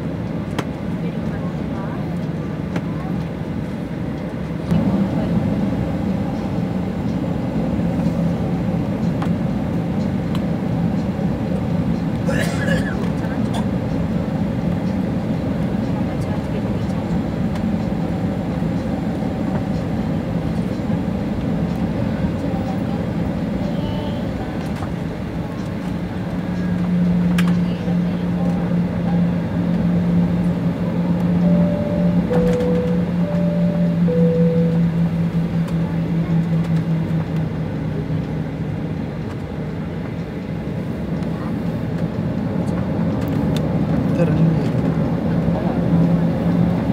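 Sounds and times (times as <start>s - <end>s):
jet airliner cabin drone: 0.0s - 46.9s
two-note alternating tone: 30.9s - 36.5s.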